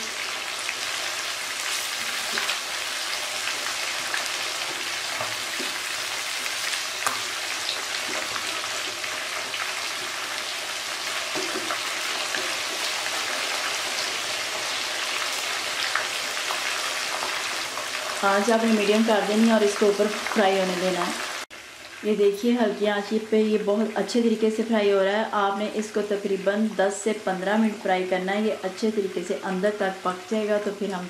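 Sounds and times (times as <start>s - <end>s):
chicken deep-frying sizzle: 0.0s - 24.4s.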